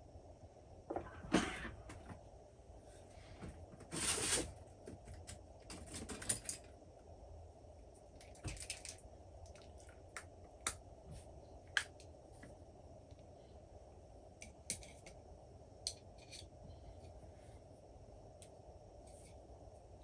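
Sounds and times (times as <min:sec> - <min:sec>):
scraping rustle of tools: 0:03.8 - 0:04.6.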